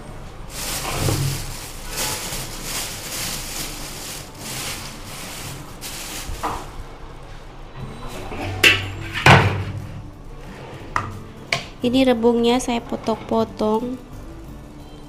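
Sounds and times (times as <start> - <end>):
plastic bag rustling: 0.0 - 6.9.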